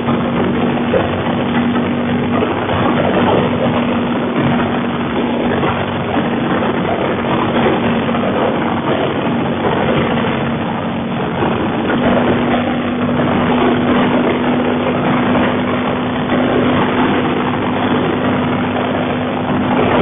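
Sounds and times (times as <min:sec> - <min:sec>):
motorcycle engine running: 0:00.0 - 0:20.0
steady hum: 0:00.0 - 0:20.0
wind rushing: 0:00.0 - 0:20.0.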